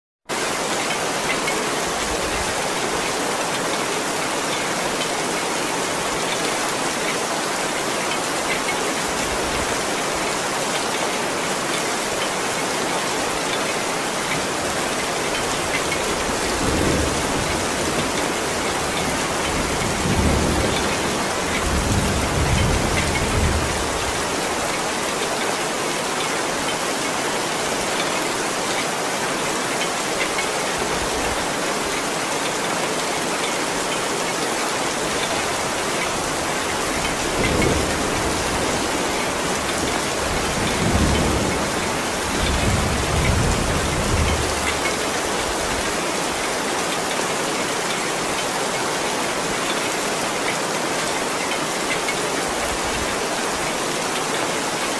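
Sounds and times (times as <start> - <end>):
heavy rain on paving and foliage: 0.2 - 54.9
low thunder rumbles: 16.2 - 24.2.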